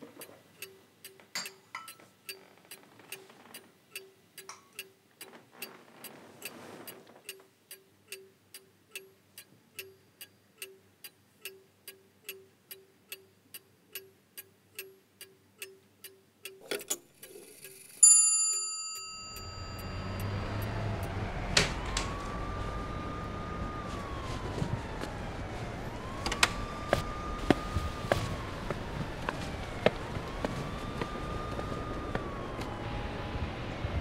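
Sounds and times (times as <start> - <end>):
clock ticking: 0.0 - 5.8, 6.4 - 21.2
bright metallic ring: 17.9 - 20.7
low rumbling street ambience: 19.2 - 34.0
siren-like tone: 19.2 - 34.0.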